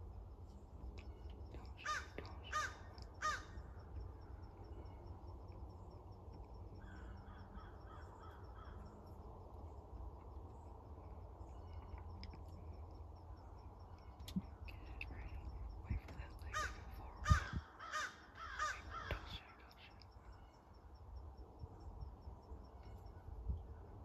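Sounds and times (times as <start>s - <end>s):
crow cawing: 1.8s - 3.8s, 6.8s - 8.9s, 16.5s - 19.3s.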